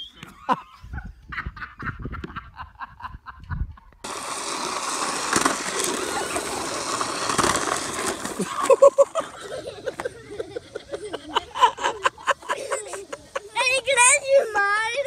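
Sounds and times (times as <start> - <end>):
plastic wheels rolling on pavement: 4.0 - 15.0.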